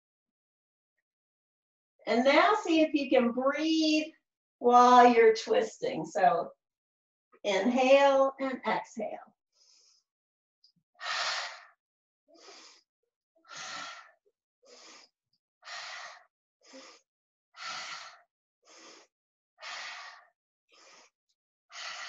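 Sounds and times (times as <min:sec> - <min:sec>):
woman breathing in and out: 0:09.6 - 0:10.1, 0:11.0 - 0:22.0.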